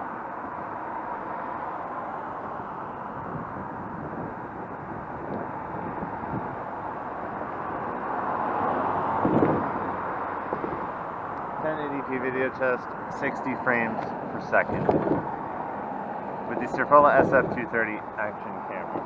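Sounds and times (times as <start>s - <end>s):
road traffic hiss: 4.8s - 19.0s.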